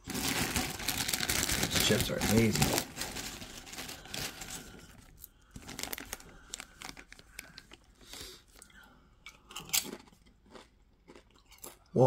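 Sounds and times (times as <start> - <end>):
plastic bag crinkling: 0.0 - 8.6.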